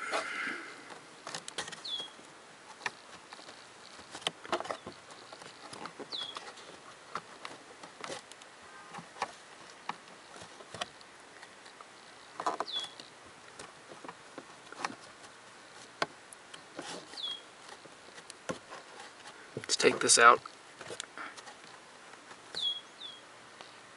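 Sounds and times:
short high squeaks: 12.6s - 13.0s, 16.8s - 17.5s, 22.6s - 23.2s.

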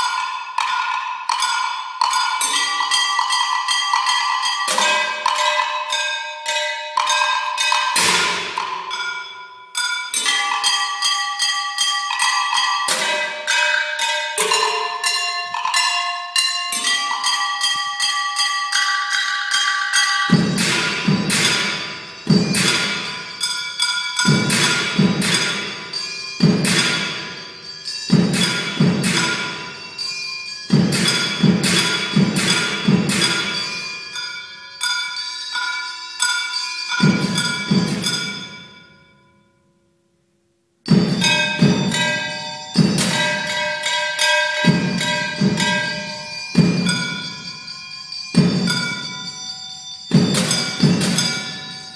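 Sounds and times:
ringing metal strikes: 0.0s - 39.8s, 40.9s - 51.9s.

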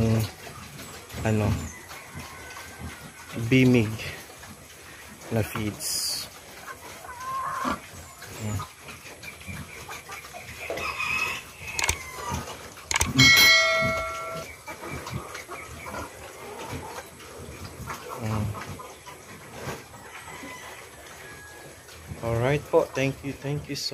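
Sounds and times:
hens clucking: 0.0s - 23.9s
pigs grunting and snuffling: 0.0s - 23.9s
bell chime: 13.2s - 14.5s.

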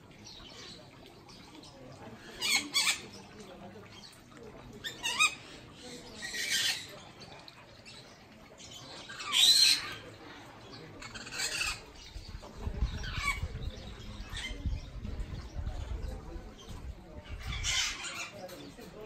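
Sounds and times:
parrots squawking: 2.3s - 3.2s, 4.8s - 5.5s, 9.0s - 10.0s, 11.0s - 11.9s, 17.3s - 18.4s.

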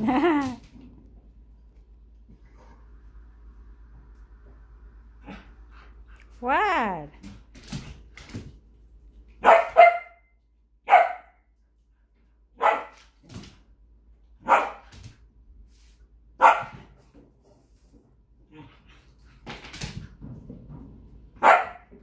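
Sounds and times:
dog barking: 9.4s - 11.4s, 12.6s - 13.0s, 14.4s - 14.9s, 16.4s - 16.8s, 21.4s - 21.9s.

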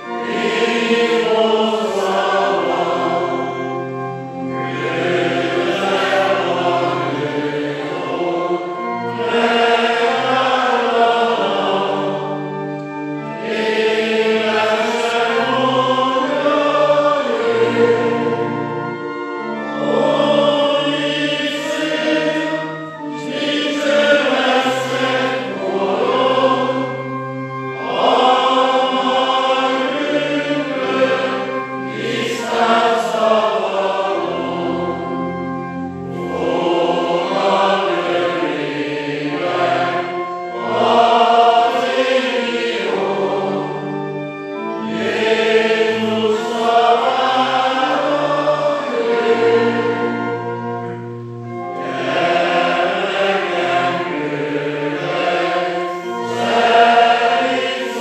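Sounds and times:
congregation singing a hymn: 0.0s - 58.0s
pipe organ low notes: 0.0s - 58.0s.

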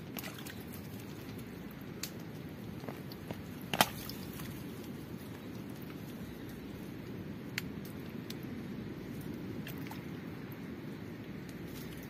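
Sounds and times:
small clicks in mud: 0.0s - 6.6s
sharp woody crack: 3.7s - 4.2s.

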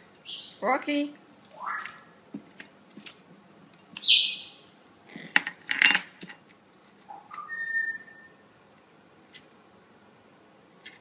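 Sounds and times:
parrot whistle rising: 1.5s - 2.1s, 4.0s - 4.6s, 7.1s - 8.4s.

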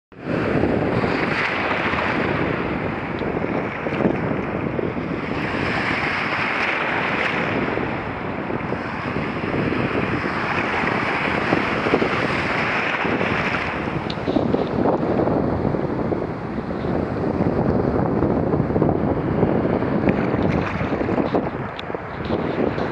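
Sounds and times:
wind noise on microphone: 0.1s - 22.9s
small waves breaking: 0.2s - 14.6s, 19.7s - 22.9s.

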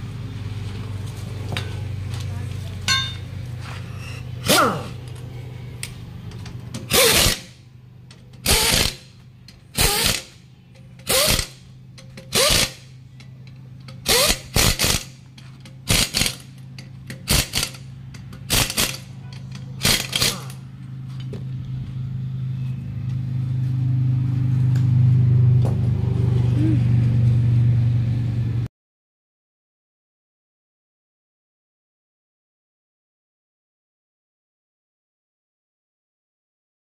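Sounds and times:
low hum: 0.0s - 28.7s
pneumatic impact wrench bursts: 6.8s - 7.6s, 8.4s - 9.1s, 9.7s - 10.4s, 11.0s - 13.0s, 13.9s - 19.1s, 19.8s - 20.6s.

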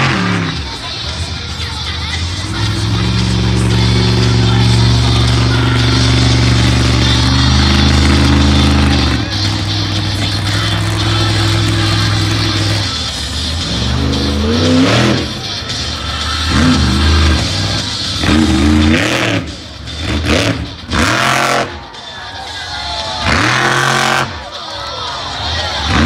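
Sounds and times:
monster truck engine revving: 0.0s - 26.0s.

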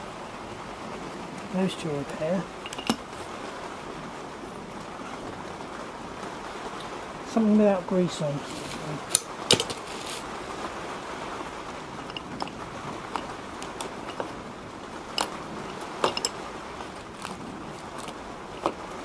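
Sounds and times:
steady background hiss: 0.0s - 19.0s
brake parts clicking: 2.6s - 3.1s, 12.0s - 14.4s, 15.1s - 18.8s.

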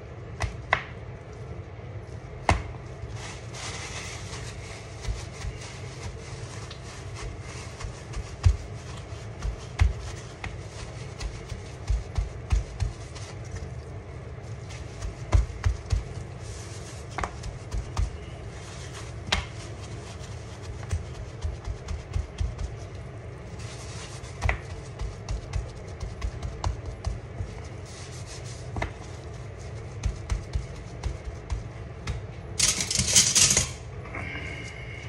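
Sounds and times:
paper towel patting meat: 0.0s - 32.7s
paper towel rubbing: 2.8s - 32.6s.

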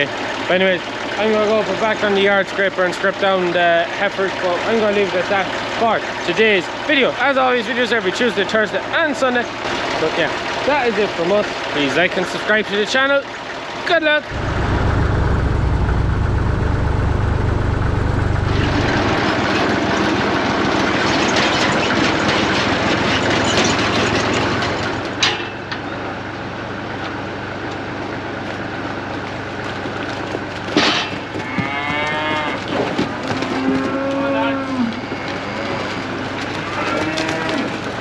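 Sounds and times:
tractor engine humming: 0.0s - 38.0s
rushing noise: 14.2s - 20.8s
cattle mooing: 31.3s - 38.0s.

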